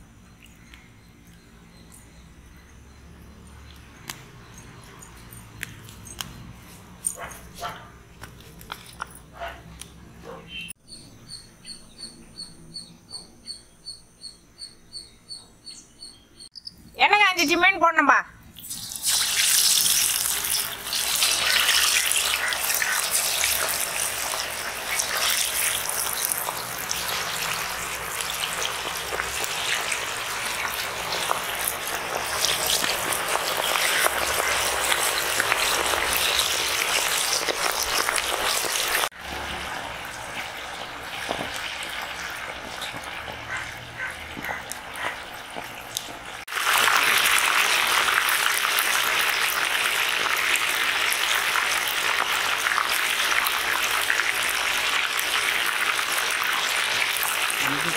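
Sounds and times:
fish sizzling in hot oil: 0:18.5 - 0:57.9.

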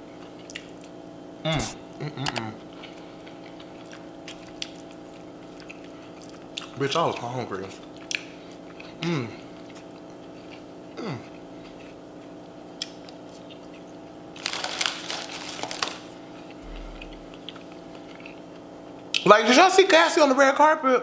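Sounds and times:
soft eating: 0:00.1 - 0:14.4, 0:15.0 - 0:19.3
person humming: 0:01.5 - 0:02.6
foil chip bag crinkling: 0:14.3 - 0:16.3.

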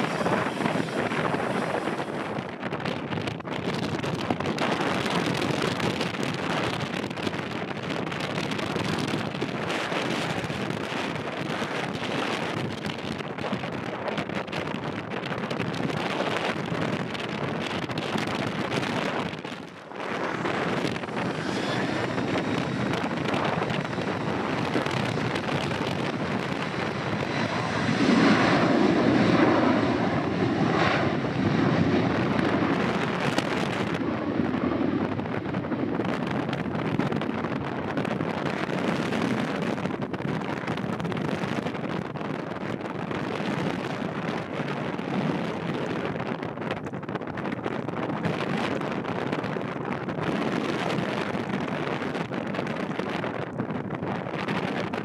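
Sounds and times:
jet engines running: 0:00.0 - 0:46.4
wind buffeting microphone: 0:00.0 - 0:55.0
rising engine whine: 0:19.1 - 0:36.6.

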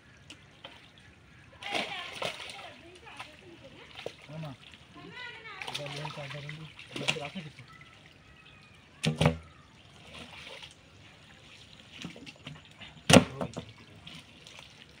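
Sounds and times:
muddy water sloshing: 0:00.0 - 0:15.0
loud water splashes: 0:01.5 - 0:10.7.

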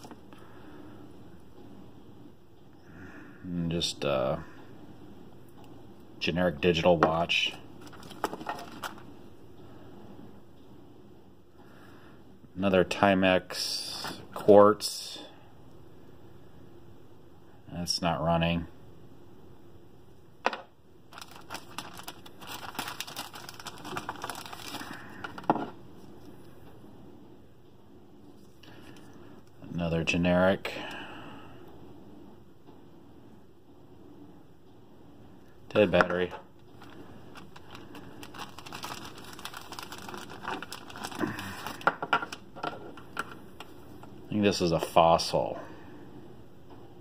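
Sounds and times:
plastic bag crinkling: 0:07.8 - 0:09.1, 0:21.1 - 0:25.7, 0:36.7 - 0:43.7.

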